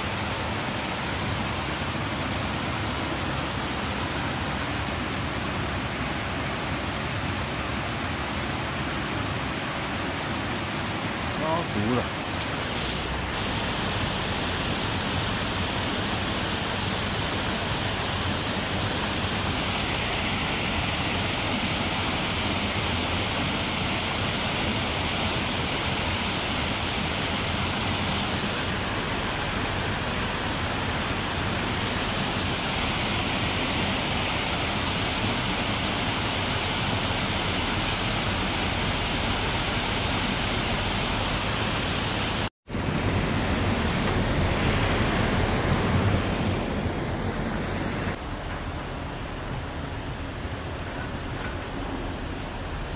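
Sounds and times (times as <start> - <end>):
water rushing over weir: 0.0 - 42.5.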